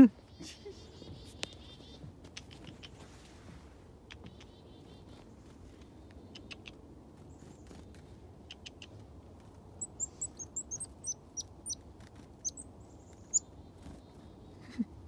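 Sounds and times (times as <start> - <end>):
songbirds chirping: 0.0 - 3.1, 3.9 - 15.0
faint bird ticks: 4.1 - 4.6, 6.0 - 6.8, 8.5 - 9.0.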